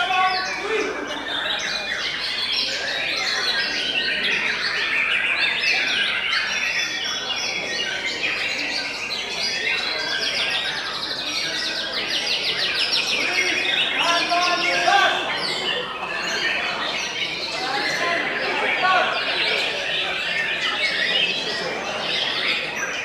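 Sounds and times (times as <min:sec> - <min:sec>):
songbirds singing: 0:00.0 - 0:23.0.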